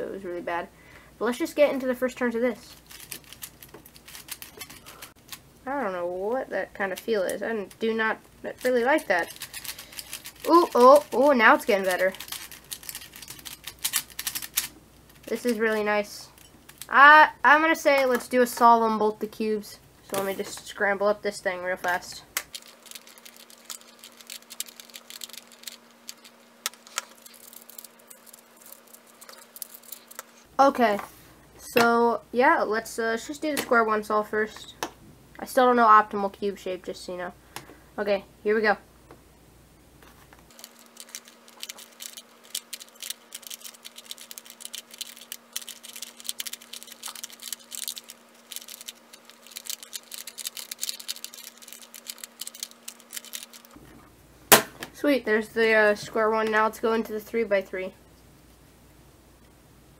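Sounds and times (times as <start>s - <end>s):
faint steady hum: 0.0s - 59.9s
plastic puzzle clicking and clacking: 2.9s - 5.2s, 8.6s - 15.6s, 40.5s - 53.8s.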